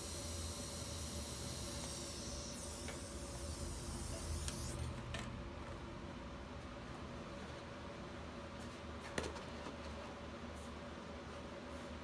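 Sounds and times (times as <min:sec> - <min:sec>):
welding arc hissing with high whine: 0:00.0 - 0:05.0.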